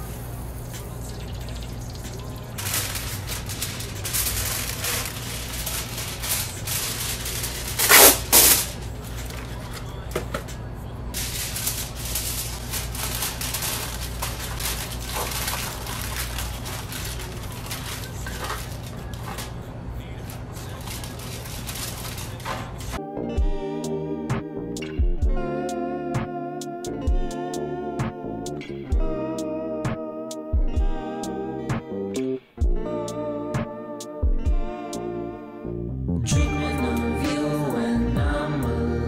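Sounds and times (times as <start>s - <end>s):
aluminium foil crinkling: 1.0s - 10.5s, 11.1s - 23.0s
loud foil rasps: 2.6s - 10.0s, 11.1s - 23.0s.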